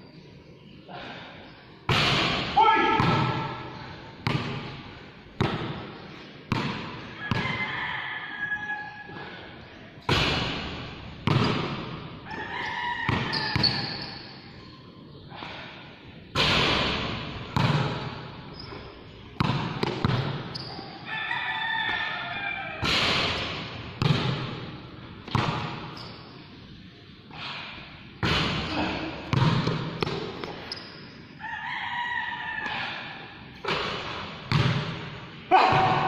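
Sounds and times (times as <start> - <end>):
basketball bouncing on court: 1.9 - 3.6, 4.2 - 4.8, 5.4 - 7.7, 10.0 - 14.2, 16.4 - 20.8, 22.8 - 26.2, 28.2 - 31.0, 33.6 - 36.0
basketball hitting hoop: 10.1 - 12.0, 16.4 - 18.2, 19.4 - 20.6, 22.8 - 24.7, 25.3 - 26.0, 28.2 - 30.5, 33.6 - 36.0.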